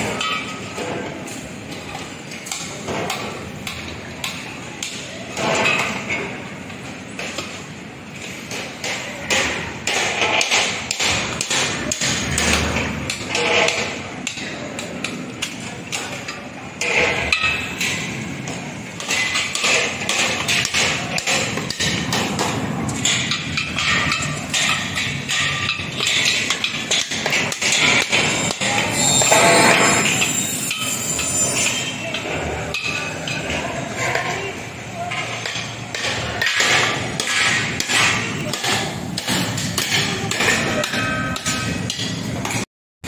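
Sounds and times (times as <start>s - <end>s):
metal clanks: 8.2s - 34.4s.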